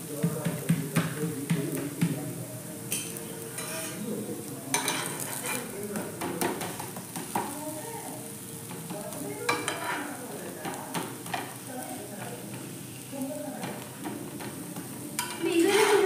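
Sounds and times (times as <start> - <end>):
flatbread sizzling on a griddle: 0.0 - 16.0
metal spatula scraping and tapping: 2.9 - 4.0, 4.7 - 7.6, 9.5 - 11.6, 13.6 - 16.0.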